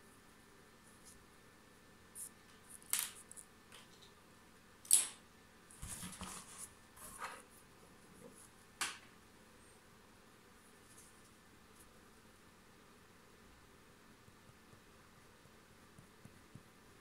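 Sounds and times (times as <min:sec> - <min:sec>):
handling rustles and scrapes: 0:05.7 - 0:07.6.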